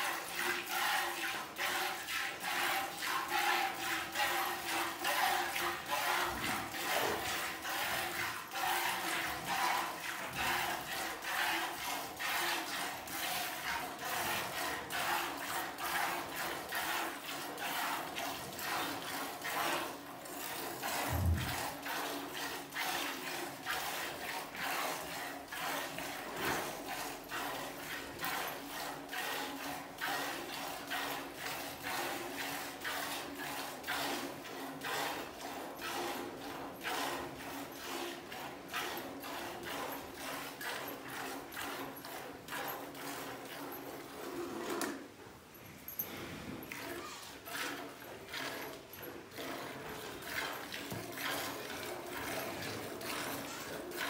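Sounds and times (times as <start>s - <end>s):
milk squirting into steel pot: 46.7s - 54.0s.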